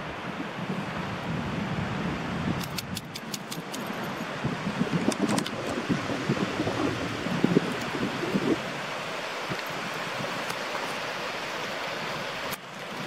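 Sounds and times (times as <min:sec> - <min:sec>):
small waves on sandy shore: 0:00.0 - 0:13.0
wind buffeting microphone: 0:00.0 - 0:13.0
sharp clicks: 0:02.6 - 0:04.0.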